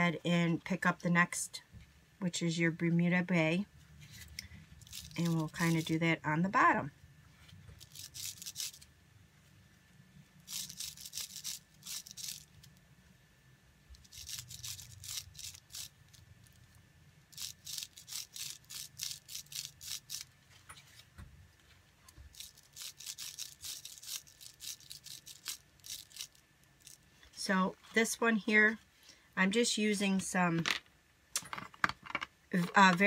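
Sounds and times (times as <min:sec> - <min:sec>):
brush scrubbing bubble wrap: 0:04.8 - 0:06.0, 0:07.8 - 0:08.8, 0:10.5 - 0:12.5, 0:14.0 - 0:16.0, 0:17.3 - 0:20.3, 0:22.3 - 0:27.0.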